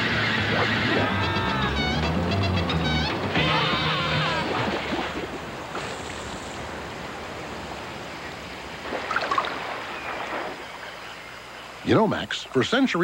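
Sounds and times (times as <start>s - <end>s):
music: 0.0s - 4.4s
flowing river water: 3.1s - 13.0s.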